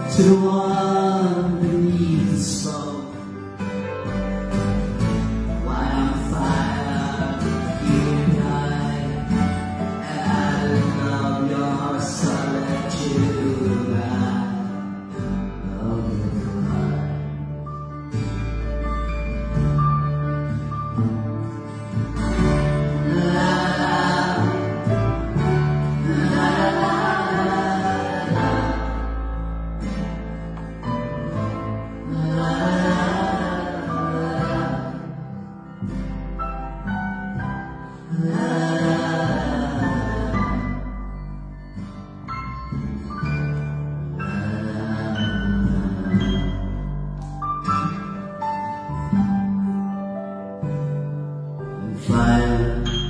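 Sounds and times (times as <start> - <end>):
acoustic ensemble playing: 0.0 - 53.0
piano: 0.0 - 53.0
strings and cello playing: 19.7 - 35.3.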